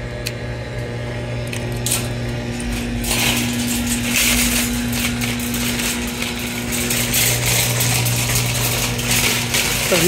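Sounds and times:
steady low hum: 0.0 - 10.0
wire basket rattling: 2.6 - 10.0
cart wheels clattering on concrete: 3.0 - 10.0.

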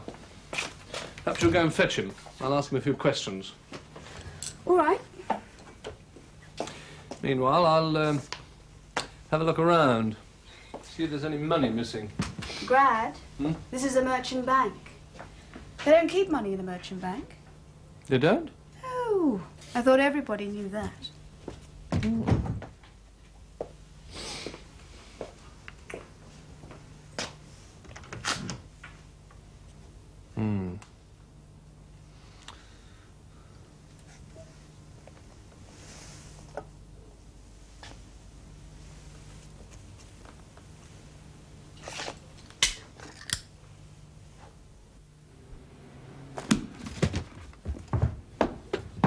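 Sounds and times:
low steady hum: 0.0 - 49.0.

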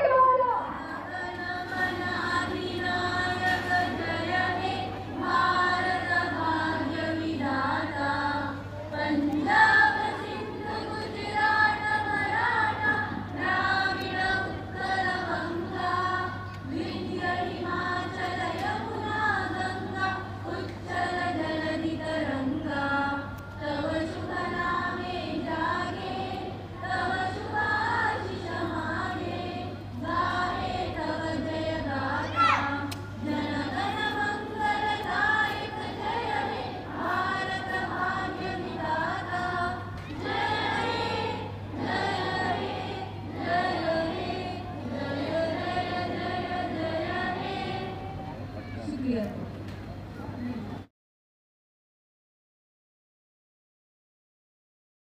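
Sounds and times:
low electrical hum: 0.0 - 50.9
crowd of women chanting: 0.6 - 48.1.

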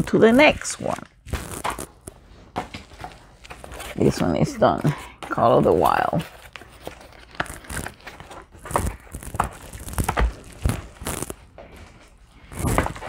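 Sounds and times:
packaging crinkling and rustling: 5.8 - 11.5.

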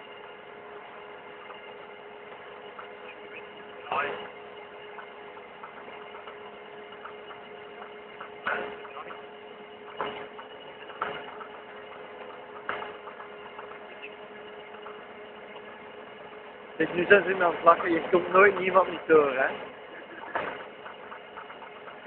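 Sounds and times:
machine hum with whine: 0.0 - 22.0
sharp knocks: 9.8 - 11.6, 12.2 - 13.8.

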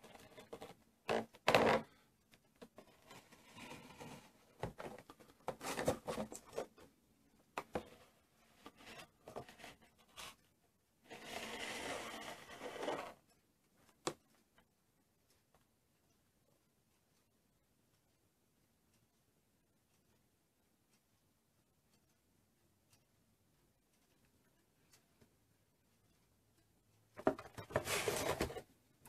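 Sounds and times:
steady rubbing sound: 2.7 - 4.6, 7.8 - 13.4.

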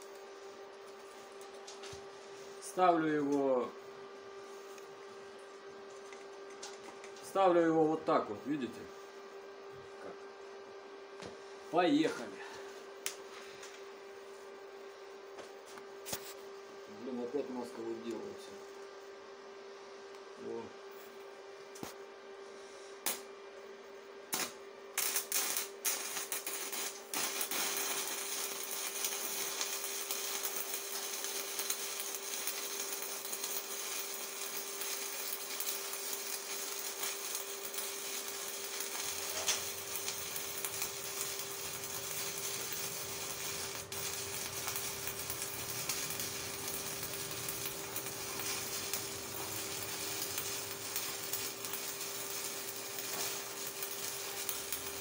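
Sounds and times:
welding arc crackling: 0.0 - 2.0, 24.3 - 55.0
welding arc striking cracks: 23.0 - 23.3, 24.3 - 55.0.

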